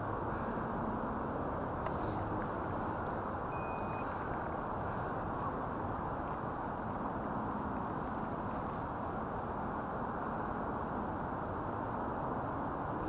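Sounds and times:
outdoor background rumble: 0.0s - 13.0s
short electronic beep: 3.5s - 4.1s.

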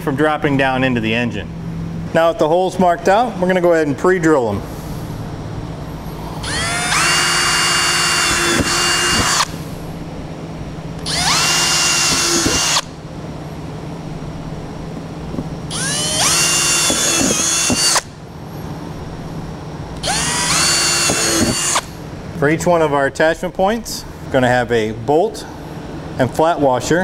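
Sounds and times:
power drill whining: 6.4s - 9.6s, 11.0s - 12.9s, 15.7s - 18.1s, 20.0s - 21.9s.

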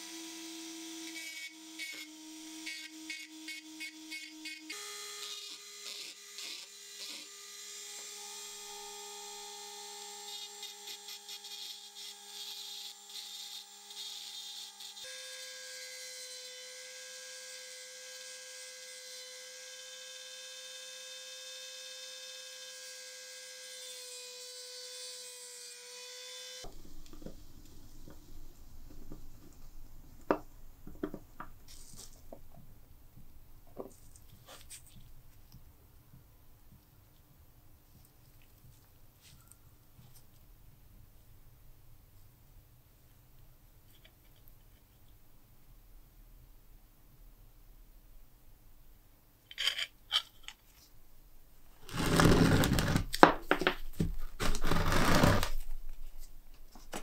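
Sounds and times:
rotary tool grinding metal: 1.0s - 18.2s, 51.8s - 53.1s, 54.5s - 55.5s.

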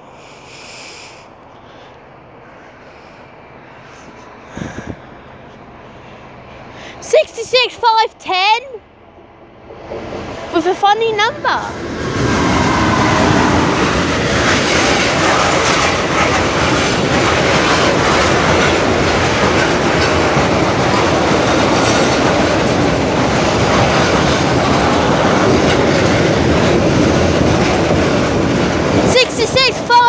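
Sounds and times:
diesel locomotive passing: 0.0s - 30.0s
train wheels on rails: 9.2s - 30.0s.

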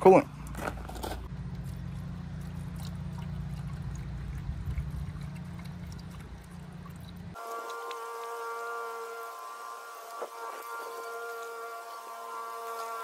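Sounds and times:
liquid pouring through a funnel: 2.4s - 8.6s.

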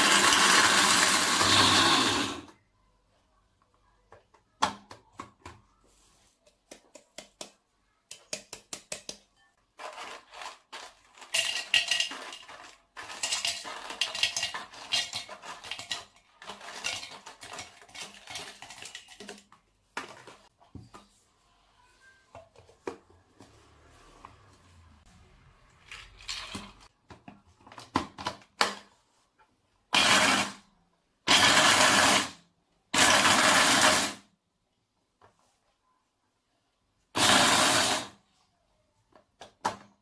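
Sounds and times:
nuts clattering into plastic cup: 9.8s - 19.5s.

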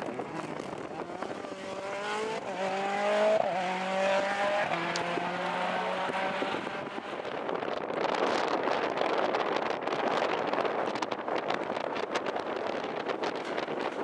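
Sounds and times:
rally car engine pulling hard: 0.0s - 14.0s.

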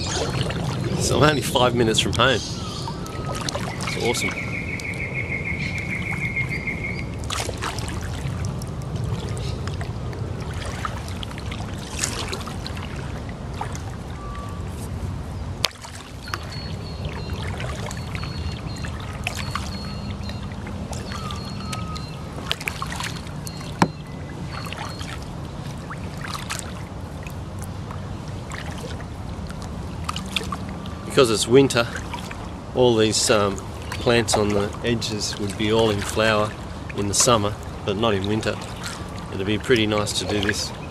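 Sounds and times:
steady low rumble: 0.0s - 15.7s
paddle splashing in water: 0.0s - 40.9s.

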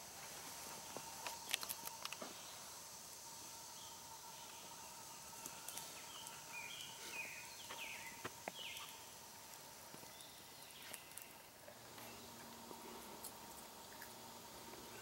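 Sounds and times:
faint woodland ambience: 0.0s - 15.0s
steady high hum: 0.0s - 15.0s.

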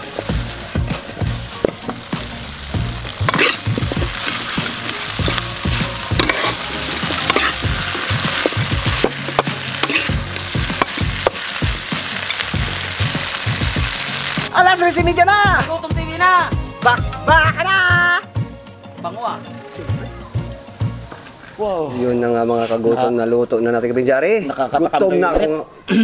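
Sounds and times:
food sizzling in a wok: 0.0s - 14.9s
metal spoon scraping a pan: 3.2s - 10.2s.

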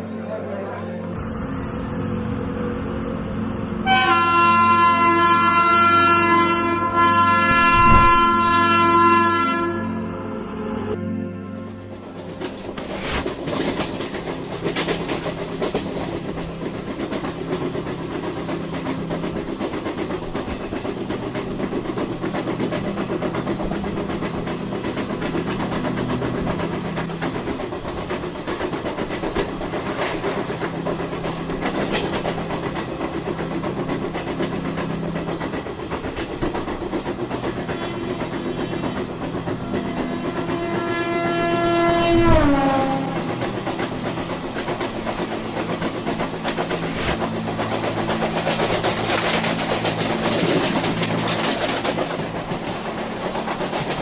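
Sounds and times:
train rumbling and rattling: 0.0s - 10.0s, 10.9s - 54.0s.

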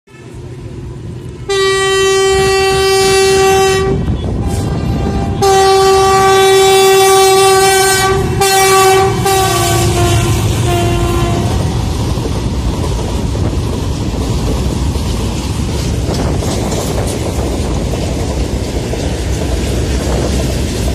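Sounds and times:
train wheels rumbling on rails: 0.1s - 20.9s
locomotive horn blasts: 1.4s - 11.8s.

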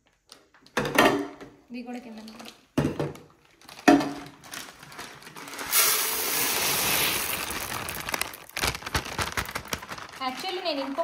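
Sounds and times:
grains poured into plastic container: 5.3s - 11.0s.

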